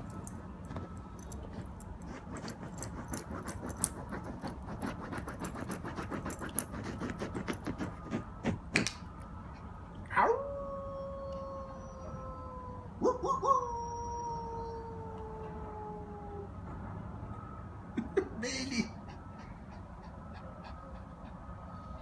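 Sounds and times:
collar tag jingling: 0.0 - 8.0
dog scratching a fabric cushion: 0.4 - 8.9.

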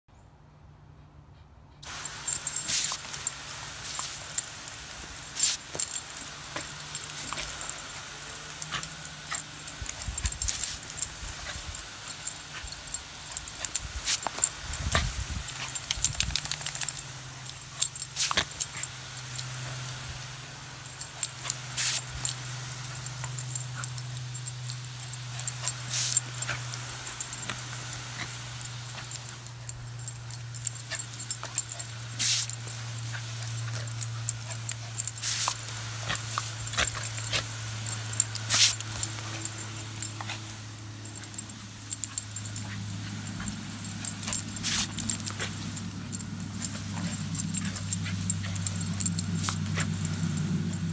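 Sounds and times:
steady low hum: 1.0 - 50.9
garden hose spraying water: 1.8 - 50.9.

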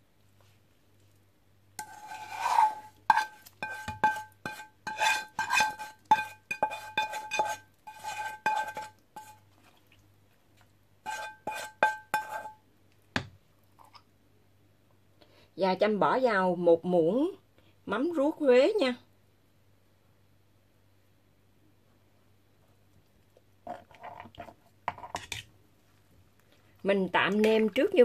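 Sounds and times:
spatula scraping metal pan: 1.8 - 9.4, 11.0 - 12.6.

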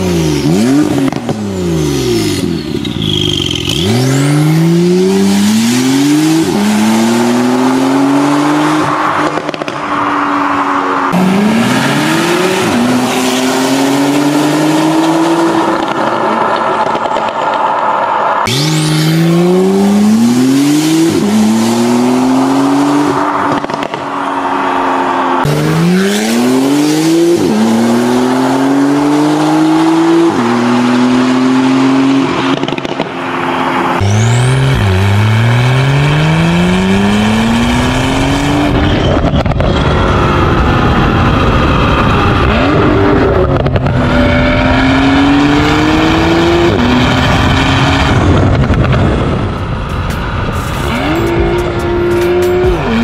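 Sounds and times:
road noise: 0.0 - 53.0.

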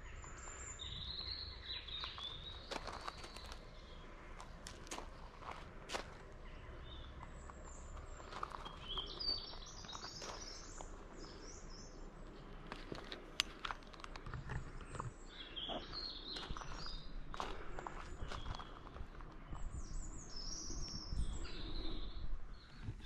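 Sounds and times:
songbirds twittering: 0.0 - 23.0
footsteps on gravel: 1.2 - 19.6.

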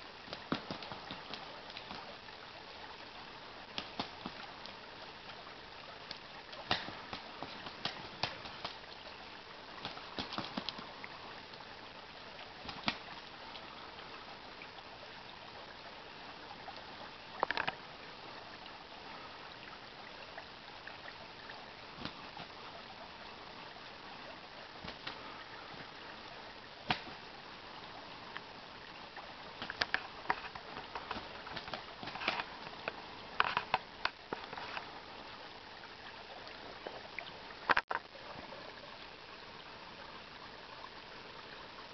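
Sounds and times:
creek running over gravel: 0.0 - 41.9
ducks splashing and wing flaps: 0.3 - 2.1, 3.7 - 4.5, 6.6 - 8.8, 9.8 - 11.0, 12.6 - 13.3, 21.9 - 22.6, 24.8 - 26.0, 26.8 - 27.3, 29.5 - 32.8.

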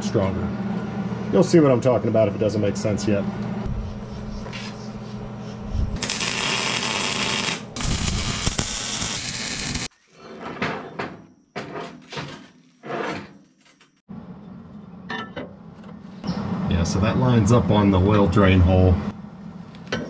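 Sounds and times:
welding arc crackling: 6.0 - 9.9.

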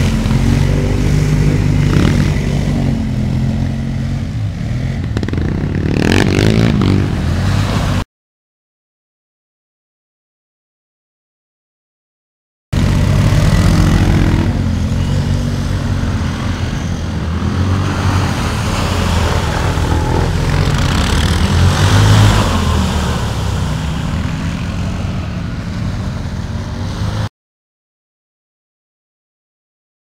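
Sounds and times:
quad bike engines revving: 0.0 - 8.0, 12.8 - 27.3.

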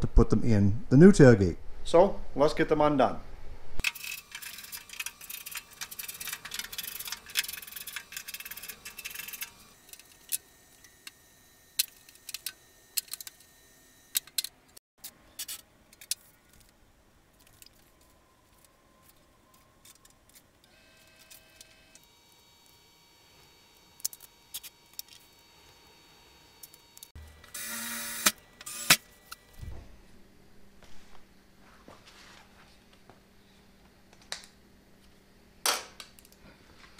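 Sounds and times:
screwdriver clicking on metal fasteners: 3.8 - 11.2, 11.8 - 13.4, 14.1 - 14.7.

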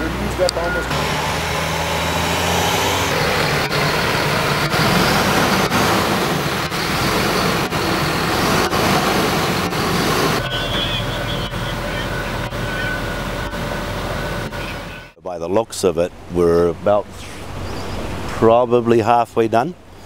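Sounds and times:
dump truck engine running: 0.0 - 15.2.

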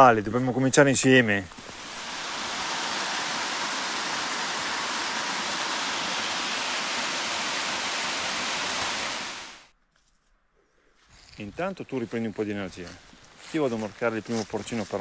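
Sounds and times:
waterfall rushing into pool: 1.7 - 9.7.

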